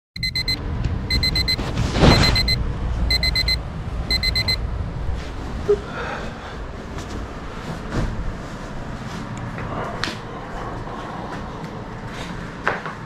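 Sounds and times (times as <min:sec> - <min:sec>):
electronic alarm beeping: 0:00.2 - 0:04.6.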